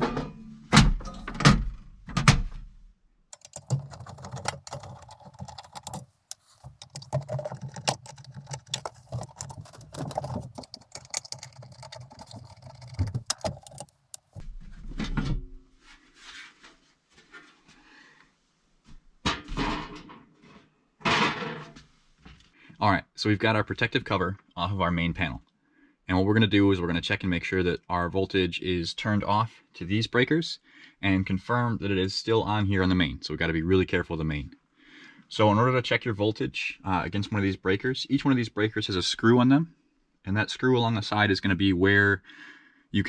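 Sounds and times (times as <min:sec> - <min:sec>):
screwdriver scraping and clicking: 0:03.4 - 0:14.4.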